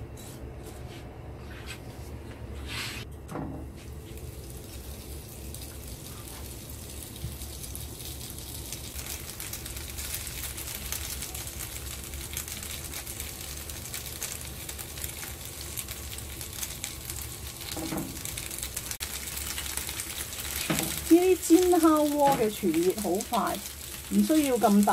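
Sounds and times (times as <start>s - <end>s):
fish sizzling in a pan: 3.9s - 24.9s.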